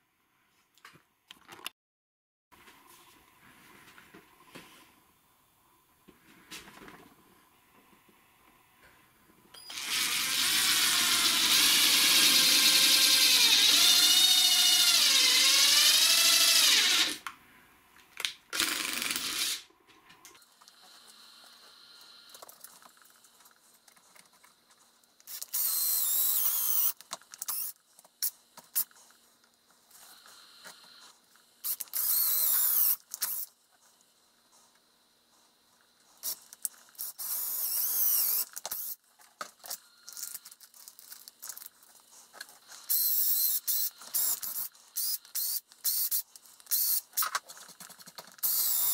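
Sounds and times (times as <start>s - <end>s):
cordless drill boring into wood: 9.7s - 17.2s, 18.6s - 19.6s, 25.3s - 27.7s, 31.7s - 33.4s, 37.0s - 39.0s, 42.9s - 47.2s, 48.4s - 48.9s.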